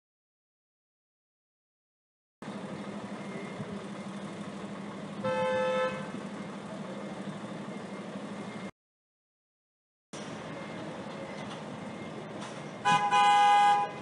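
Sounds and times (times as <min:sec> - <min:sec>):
low street and engine hum: 0:02.4 - 0:08.8, 0:10.2 - 0:14.0
vehicle horn honk: 0:05.2 - 0:06.2, 0:12.8 - 0:14.0.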